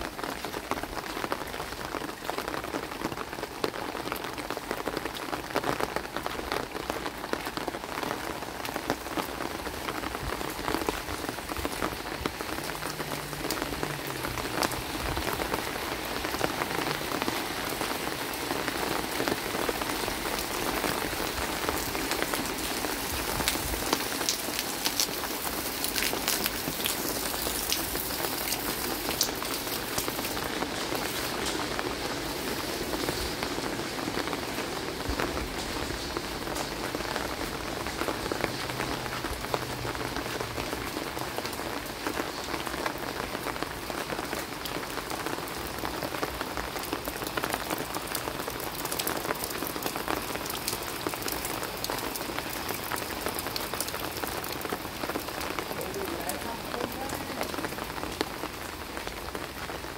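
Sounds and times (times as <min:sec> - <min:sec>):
rain on wet concrete: 0:00.0 - 0:59.9.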